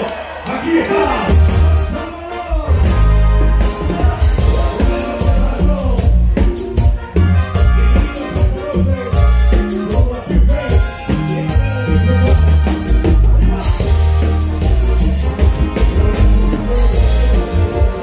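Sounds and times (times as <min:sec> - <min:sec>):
live band playing dance music: 0:00.0 - 0:18.0
person singing: 0:03.7 - 0:06.3.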